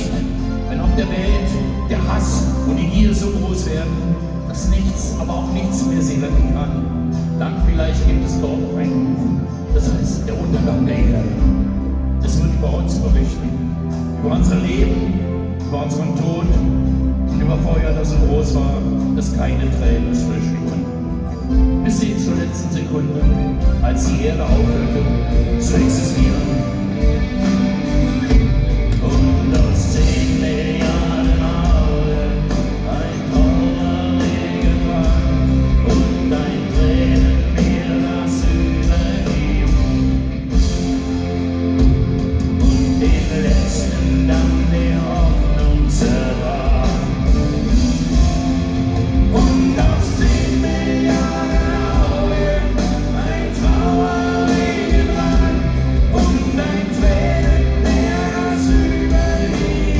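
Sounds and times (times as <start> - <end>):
live rock band playing: 0.0 - 59.9
lead singer singing: 21.8 - 41.0, 42.6 - 48.3, 49.1 - 59.9.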